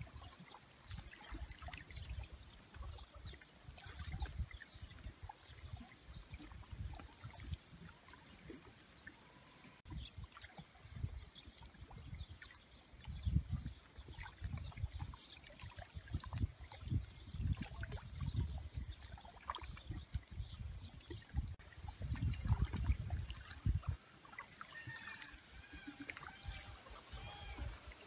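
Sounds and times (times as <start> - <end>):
small waves lapping on stony shore: 21.1 - 28.0.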